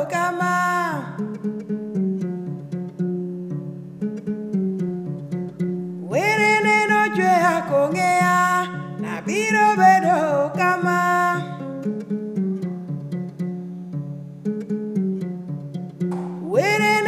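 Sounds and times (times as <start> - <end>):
person singing: 0.0 - 1.4, 6.0 - 11.9, 16.2 - 17.0
plucked string instrument: 0.0 - 17.0.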